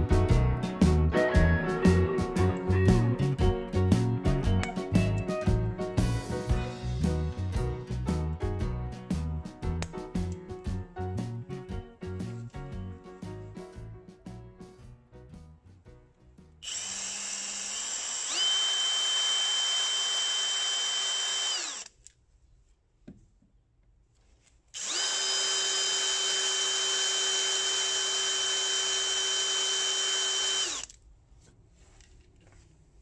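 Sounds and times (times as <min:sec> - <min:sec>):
milling machine motor whine: 0:16.6 - 0:21.9, 0:24.8 - 0:30.9.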